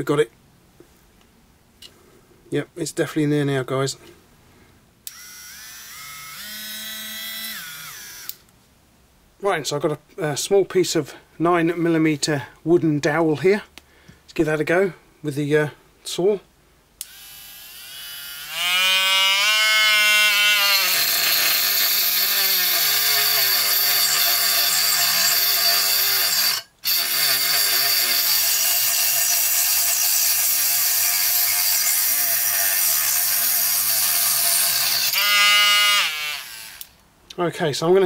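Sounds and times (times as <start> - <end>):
rotary grinder sawing wood: 17.0 - 37.0.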